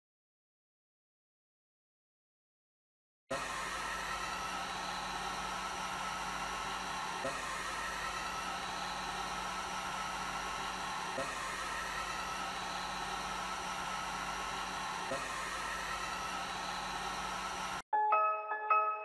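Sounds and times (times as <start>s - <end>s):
fan hum: 3.3s - 17.8s
hot air gun blowing: 3.3s - 17.8s.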